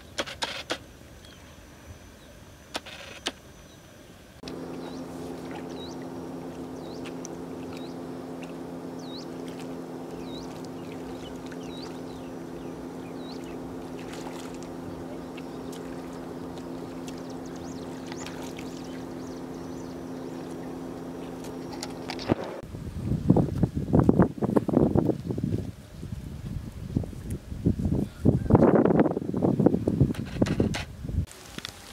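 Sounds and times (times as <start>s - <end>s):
low drone: 4.4s - 22.8s
bird chirps: 4.6s - 8.1s, 8.9s - 22.3s
water splashing in a puddle: 13.8s - 19.1s.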